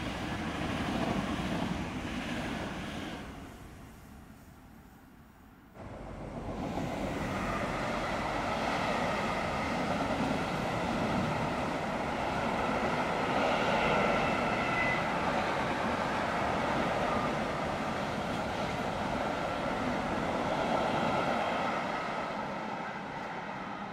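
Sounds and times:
train wheels rumbling on rail: 0:00.0 - 0:04.0, 0:05.8 - 0:23.9.

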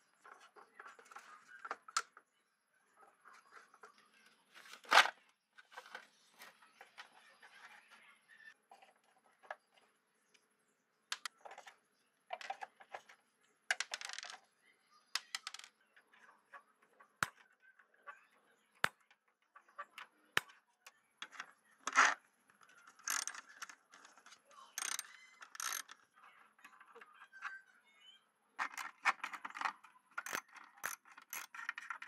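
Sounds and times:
socket wrench scraping: 0:23.0 - 0:23.4, 0:24.8 - 0:25.9, 0:30.2 - 0:32.0
plastic clicks and taps: 0:28.6 - 0:32.0.

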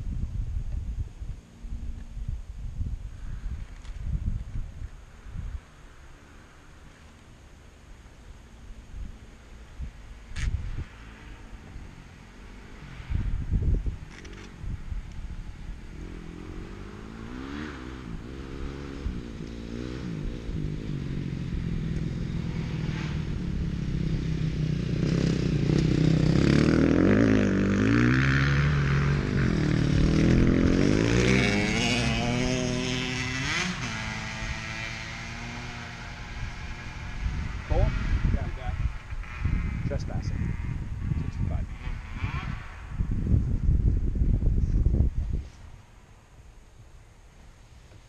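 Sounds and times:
dirt bike engines revving: 0:05.0 - 0:45.8.

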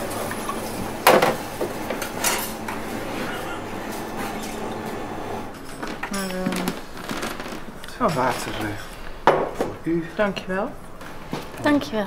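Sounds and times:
glassware and crockery clinking: 0:02.0 - 0:02.7, 0:07.9 - 0:09.7.

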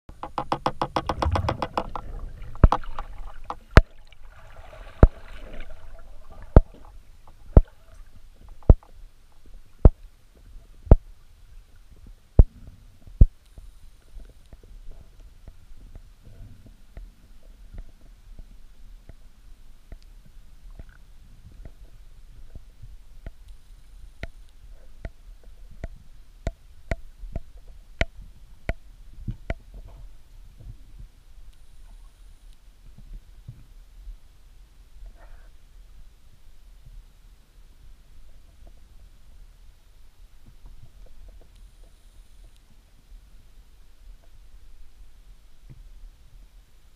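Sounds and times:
sharp underwater clicks: 0:00.1 - 0:04.2, 0:04.9 - 0:10.1, 0:19.9 - 0:21.9, 0:22.5 - 0:30.0
rapid underwater ticking: 0:00.1 - 0:11.2
low underwater rumble: 0:00.8 - 0:46.6.

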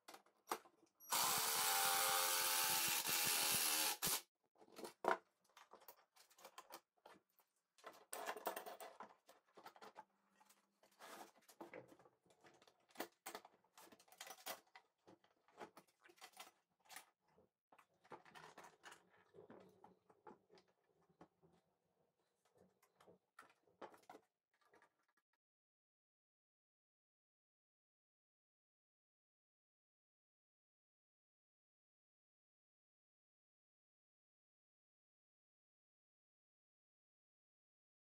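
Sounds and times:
cordless drill driving screw: 0:01.1 - 0:04.2.

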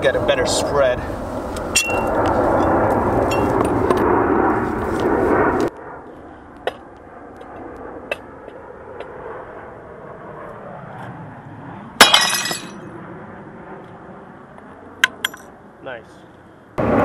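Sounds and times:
plate pieces clattering: 0:12.0 - 0:12.7
sledgehammer shattering plate: 0:12.0 - 0:12.8.

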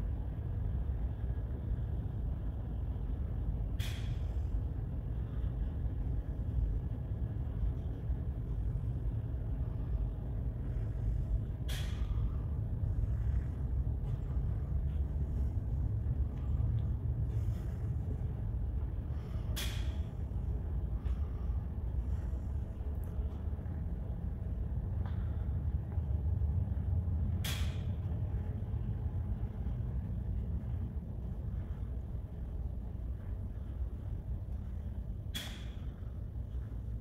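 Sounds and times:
ship engines low rumble: 0:00.0 - 0:37.0.

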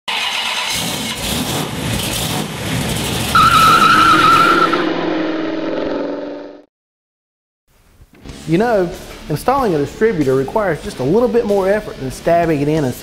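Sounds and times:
car engine and tyres rushing: 0:00.1 - 0:06.6
tyre squeal: 0:03.4 - 0:05.1.

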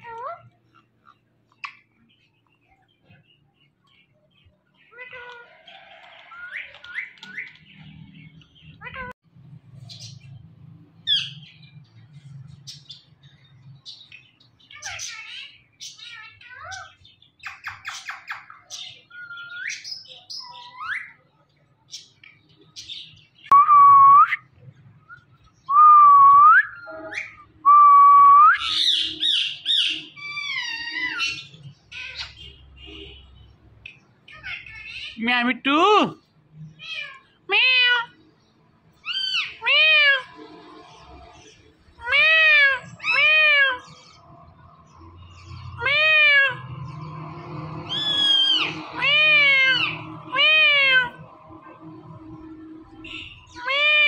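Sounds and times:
shrill parakeet squawking: 0:14.7 - 0:21.1, 0:28.6 - 0:32.6, 0:39.0 - 0:40.4, 0:42.0 - 0:44.0, 0:47.9 - 0:51.2, 0:53.0 - 0:54.0
parrot mimicking cat meow: 0:36.8 - 0:38.2, 0:39.0 - 0:40.3, 0:42.0 - 0:44.0, 0:45.8 - 0:46.6, 0:48.0 - 0:51.2, 0:53.6 - 0:54.0.

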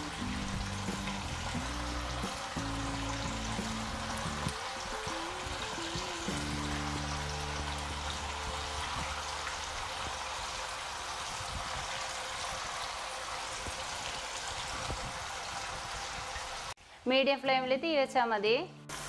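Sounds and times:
low held music chord: 0:00.0 - 0:10.3
chicken deep-frying in oil: 0:00.0 - 0:16.8.

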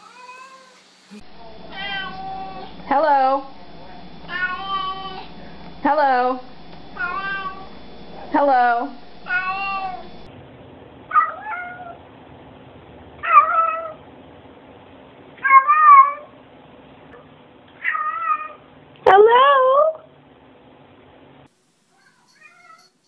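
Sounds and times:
cats meowing: 0:01.7 - 0:02.8, 0:04.3 - 0:05.3, 0:07.0 - 0:07.7, 0:09.3 - 0:10.2, 0:17.8 - 0:18.6, 0:22.0 - 0:22.9.

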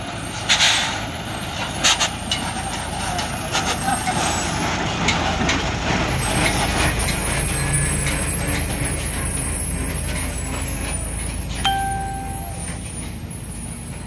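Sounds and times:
truck engine rumbling: 0:00.0 - 0:14.0.

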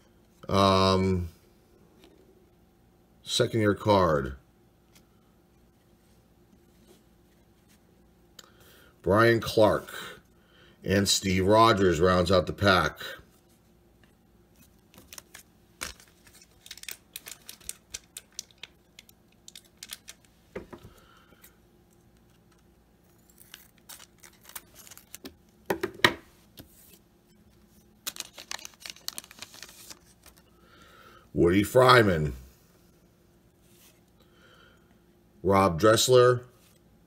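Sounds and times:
card wrapper crinkling: 0:14.6 - 0:20.4, 0:22.0 - 0:25.6, 0:28.0 - 0:30.5.

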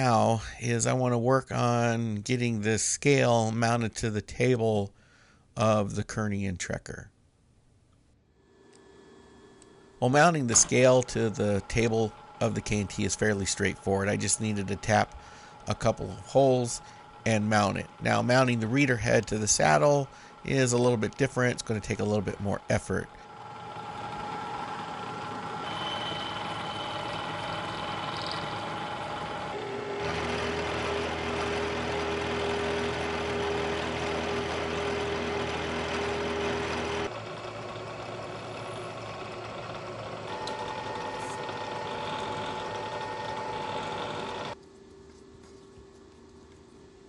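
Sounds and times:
steady motor hum: 0:08.4 - 0:47.0
drill boring holes: 0:10.0 - 0:44.6
milling machine cutting metal: 0:10.0 - 0:44.6.

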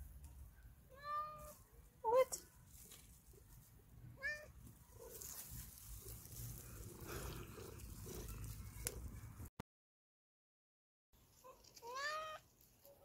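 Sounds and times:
soft rustling in grass: 0:01.3 - 0:09.4, 0:11.2 - 0:13.0
cat meowing: 0:11.8 - 0:12.4.

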